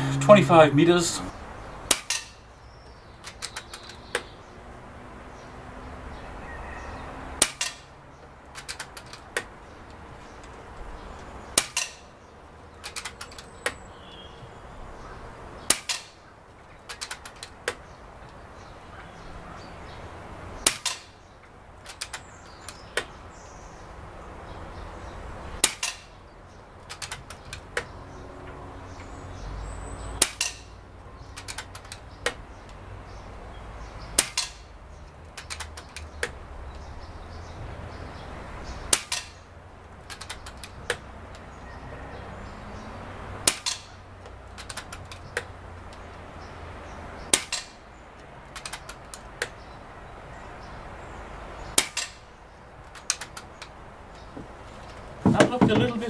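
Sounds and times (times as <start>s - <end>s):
air rifle shots: 1.8s - 2.4s, 7.4s - 7.9s, 11.5s - 12.0s, 25.6s - 26.2s, 30.2s - 30.7s, 34.2s - 34.7s, 43.4s - 44.0s, 51.7s - 52.2s.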